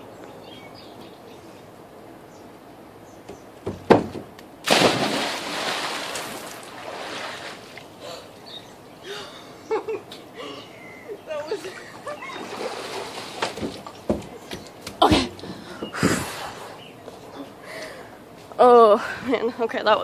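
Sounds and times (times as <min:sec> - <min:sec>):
sharp knocks: 0:03.3 - 0:04.3
loud splash into pool: 0:04.6 - 0:07.7.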